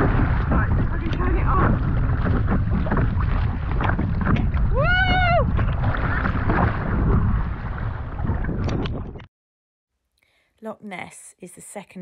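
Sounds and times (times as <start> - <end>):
kayak paddle splashing: 0.0 - 9.2
wind buffeting microphone: 0.0 - 9.3.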